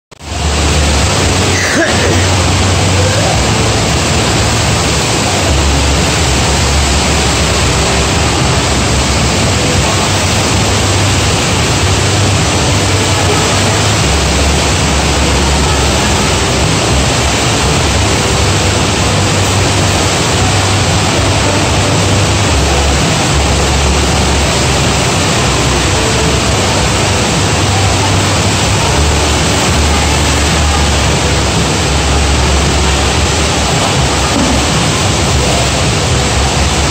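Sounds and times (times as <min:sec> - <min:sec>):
water rushing over wave surface: 0:00.1 - 0:36.9
low rumble: 0:00.2 - 0:36.9.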